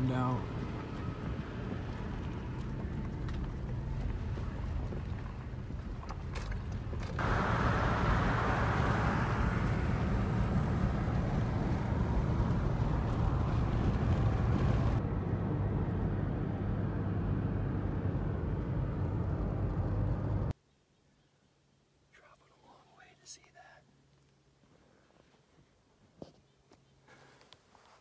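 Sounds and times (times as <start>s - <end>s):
engine and tyre hum: 0.0s - 20.6s
road and wind noise in car: 0.0s - 20.6s.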